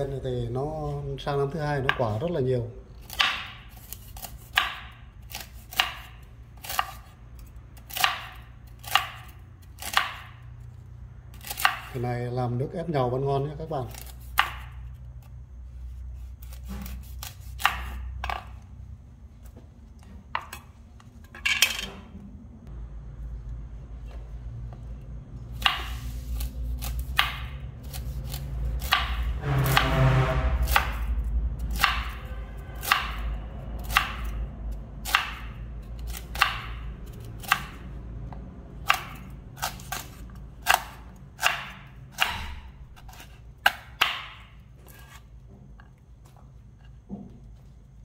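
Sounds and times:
knife chopping hard fruit: 0:03.0 - 0:07.1, 0:07.8 - 0:10.4, 0:11.4 - 0:12.0, 0:13.9 - 0:14.8, 0:16.2 - 0:18.5, 0:25.5 - 0:29.9, 0:35.0 - 0:37.9, 0:38.8 - 0:45.2.

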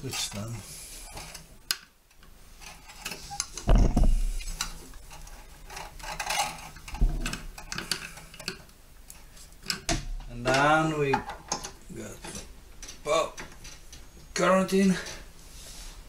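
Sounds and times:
dull knocks: 0:03.6 - 0:04.3.

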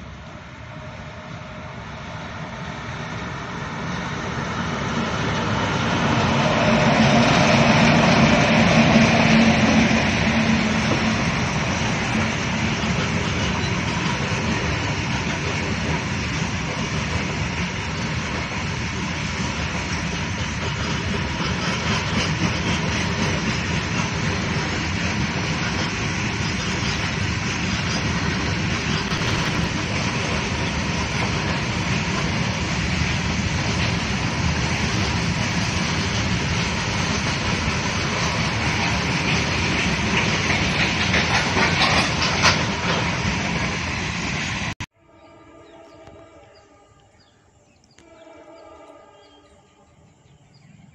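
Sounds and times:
train wheels rumbling on rails: 0:00.0 - 0:44.9
clattering over rail joints: 0:38.2 - 0:43.2.

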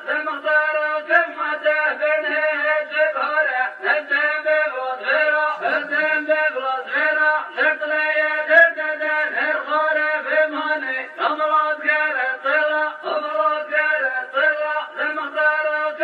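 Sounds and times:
man chanting a song: 0:00.0 - 0:16.0.

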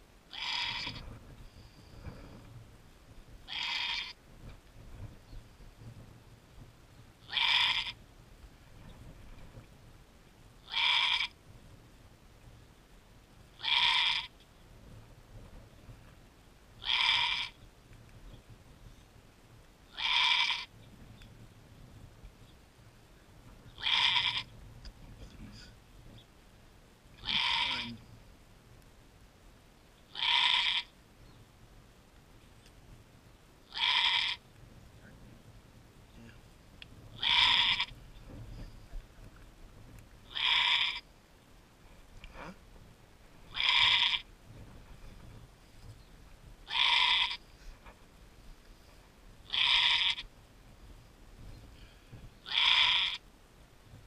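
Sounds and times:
goat bleating: 0:03.5 - 0:04.1, 0:23.8 - 0:24.5, 0:27.2 - 0:28.0, 0:30.2 - 0:30.9, 0:33.7 - 0:34.4, 0:37.2 - 0:37.9, 0:40.3 - 0:41.0, 0:43.6 - 0:44.2, 0:46.7 - 0:47.4, 0:49.5 - 0:50.2, 0:52.4 - 0:53.2.

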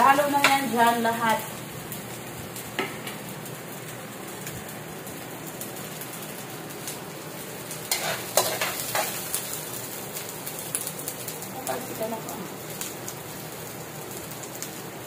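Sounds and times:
onion sizzling in hot oil: 0:00.0 - 0:15.0
metal spatula scraping wok: 0:07.9 - 0:09.2.

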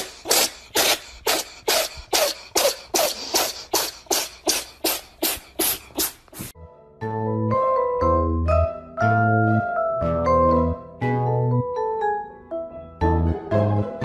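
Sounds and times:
cat huffing: 0:00.0 - 0:06.5.

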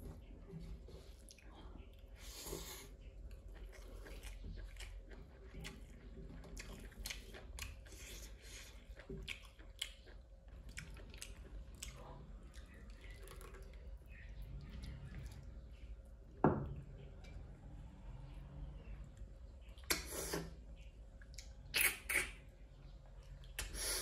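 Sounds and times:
person chewing food: 0:00.1 - 0:16.0.

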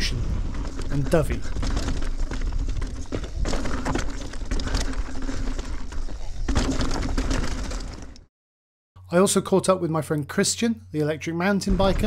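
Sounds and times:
tyres crunching over dirt and stones: 0:00.4 - 0:08.2
bike knocks and rattles: 0:00.5 - 0:08.3.

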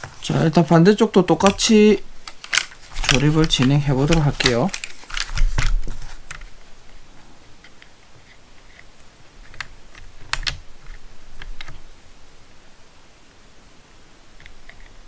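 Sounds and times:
plastic parts clicking and tapping: 0:01.3 - 0:06.5, 0:07.6 - 0:11.8.

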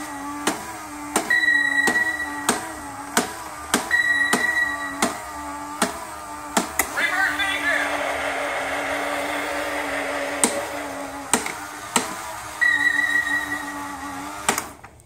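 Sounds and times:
steady low electronic hum: 0:07.0 - 0:12.5.

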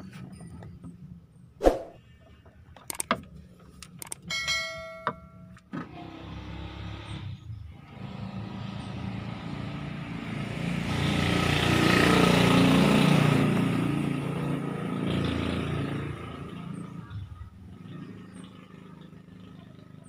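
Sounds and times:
motor vehicle passing: 0:01.6 - 0:02.2, 0:05.9 - 0:20.0.

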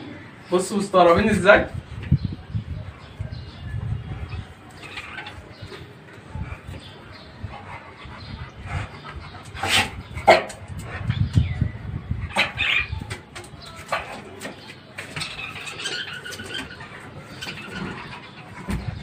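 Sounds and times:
budgerigars twittering: 0:12.3 - 0:19.0.

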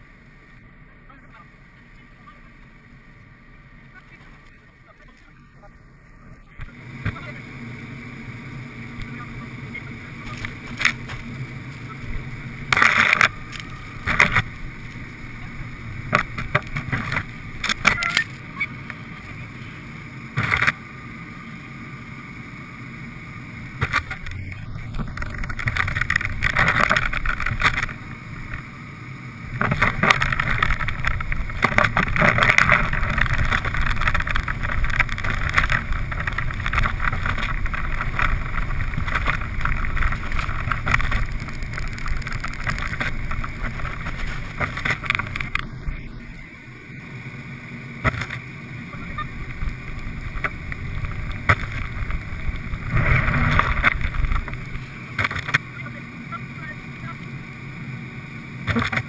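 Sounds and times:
car engine and tyres rumbling: 0:00.0 - 0:59.0
short crackles: 0:23.6 - 0:28.8, 0:29.4 - 0:46.4, 0:48.0 - 0:57.3.

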